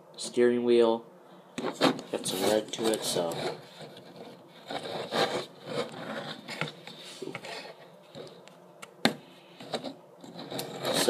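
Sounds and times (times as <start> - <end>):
plastic rubbing and scraping: 1.6 - 8.6, 9.6 - 11.0.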